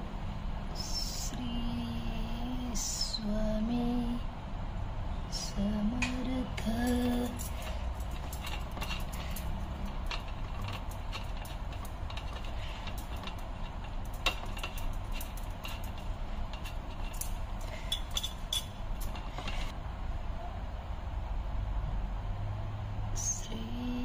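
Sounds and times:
steady low rumble: 0.0s - 22.3s
brass clinking on brass plate: 6.9s - 19.7s.

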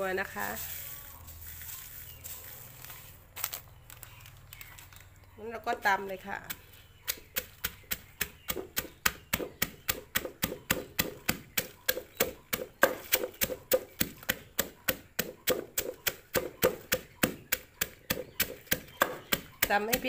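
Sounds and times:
pestle pounding in stone mortar: 6.4s - 20.0s.

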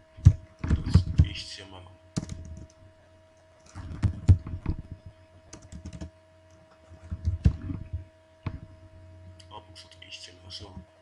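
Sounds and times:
computer keyboard typing: 2.2s - 2.8s, 3.7s - 4.9s, 5.5s - 6.1s.

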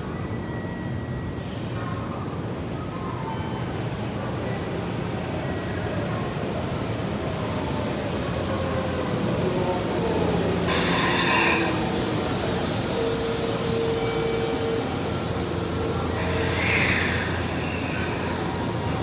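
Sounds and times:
train rolling and braking: 0.0s - 19.0s
brake squeals: 15.8s - 18.9s.

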